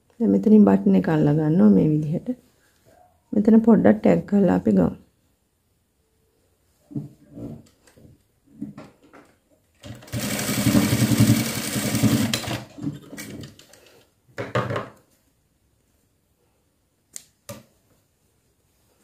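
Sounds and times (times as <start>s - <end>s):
sewing machine stitching: 9.8s - 13.5s.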